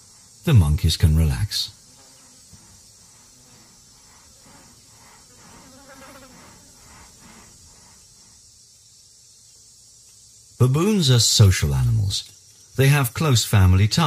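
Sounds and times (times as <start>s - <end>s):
high-pitched insect chorus: 0.0s - 14.0s
soft insect pulses: 0.0s - 14.0s.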